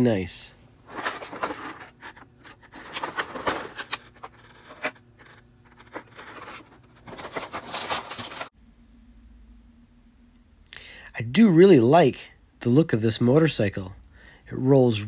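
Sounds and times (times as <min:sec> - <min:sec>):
plastic packaging crinkling: 0:00.9 - 0:08.5.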